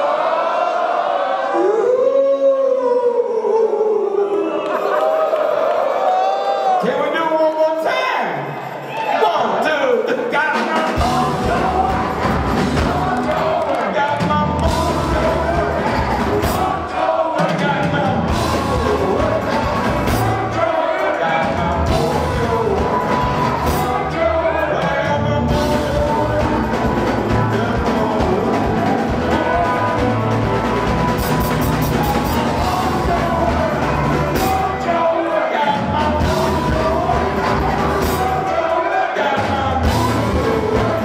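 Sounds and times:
drums: 10.0s - 41.0s
bass: 10.8s - 17.0s, 17.6s - 35.1s, 35.8s - 38.7s, 39.4s - 41.0s.

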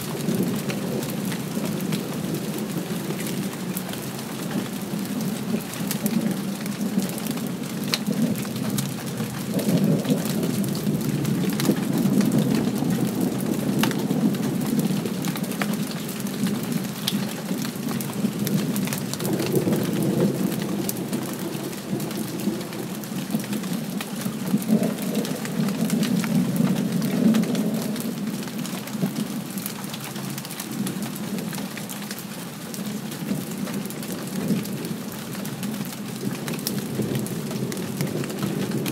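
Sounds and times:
raindrops ticking close by: 0.0s - 38.9s
steady rain: 0.0s - 38.9s
distant thunder rumbling: 0.1s - 29.4s.

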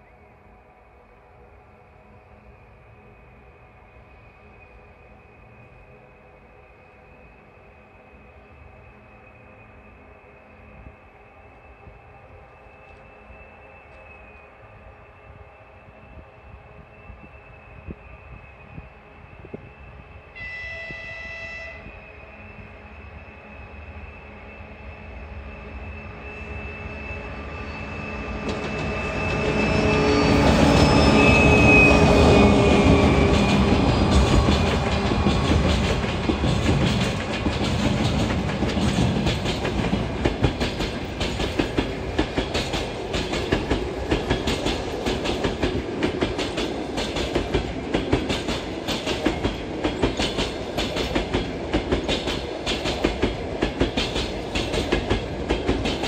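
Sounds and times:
diesel locomotive passing: 0.0s - 56.0s
train wheels clacking over rail joints: 32.1s - 56.0s.

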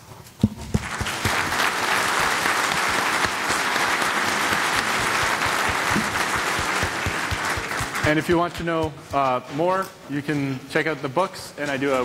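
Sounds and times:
audience applauding: 0.7s - 8.7s.

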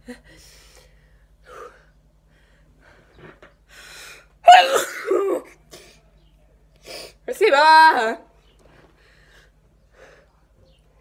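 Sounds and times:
woman sneezing: 4.4s - 5.5s.

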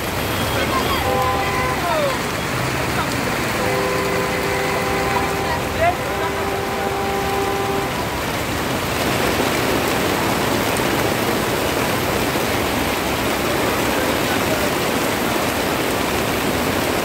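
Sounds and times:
heavy rain on umbrella: 0.0s - 17.0s
water pouring off umbrella: 7.4s - 17.0s.

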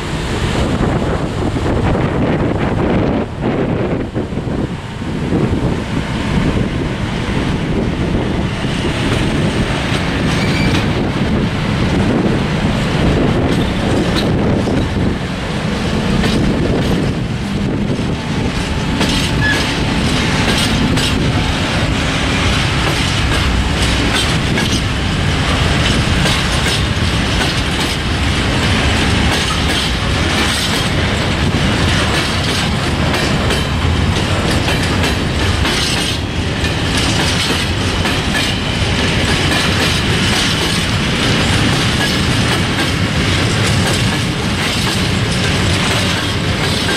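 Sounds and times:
freight train rumbling past: 0.0s - 46.9s
faint wheel squeal: 10.4s - 10.8s
wheels clattering over rail joints: 11.9s - 46.9s.

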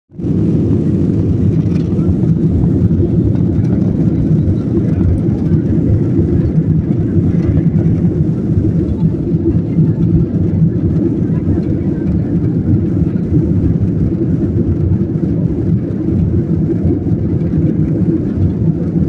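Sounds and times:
airliner taxiing engine rumble: 0.1s - 19.0s.

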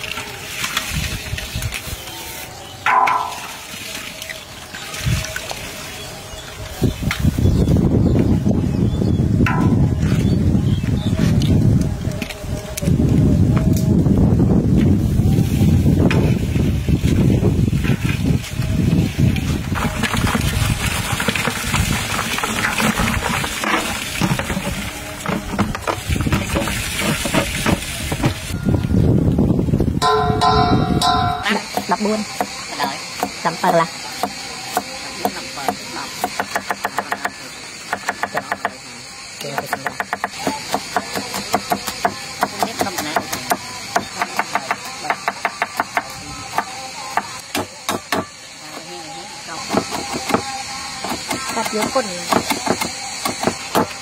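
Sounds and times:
cleaver chopping on wooden board: 33.2s - 38.8s, 39.6s - 48.3s, 49.7s - 53.9s.

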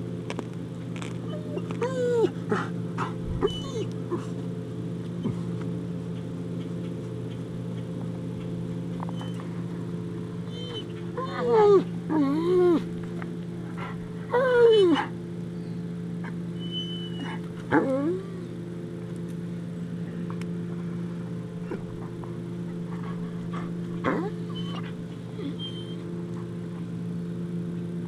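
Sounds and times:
steady low hum: 0.0s - 28.0s
dog whining: 1.2s - 4.4s, 9.0s - 9.4s, 10.4s - 13.0s, 13.8s - 15.2s, 16.2s - 18.6s, 21.6s - 26.1s.

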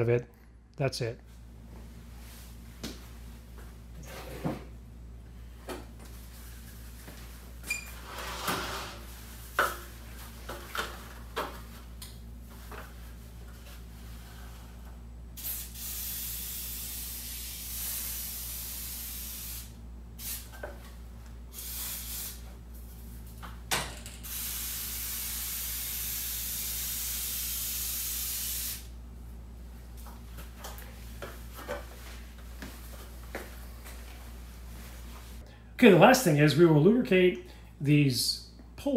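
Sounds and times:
aerosol spray hissing: 15.4s - 20.6s, 21.5s - 22.5s, 24.2s - 28.9s.

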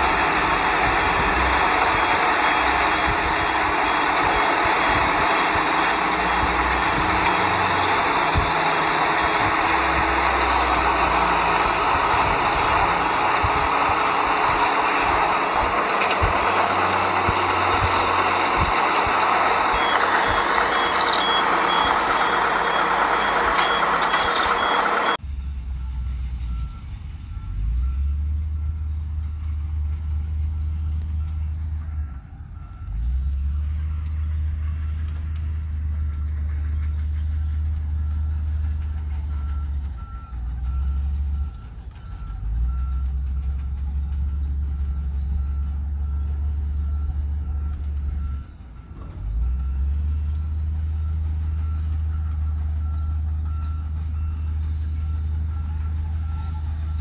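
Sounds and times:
heavy diesel engine rumble: 0.0s - 57.0s
reversing alarm beeping: 0.0s - 57.0s
bright noise with higher beep: 16.6s - 25.2s.

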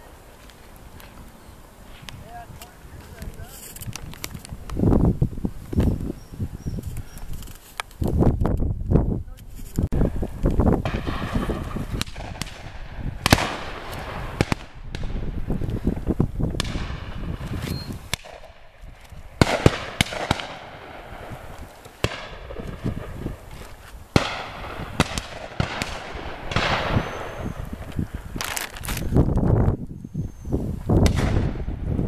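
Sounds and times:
distant shotgun shots echoing: 10.8s - 15.2s, 19.4s - 21.4s, 22.0s - 23.4s, 24.2s - 27.6s, 31.0s - 31.7s.

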